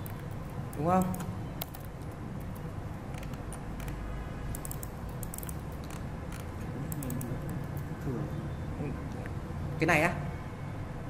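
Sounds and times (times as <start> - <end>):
keyboard keystrokes: 0.0 - 7.9
low steady hum: 0.0 - 11.0.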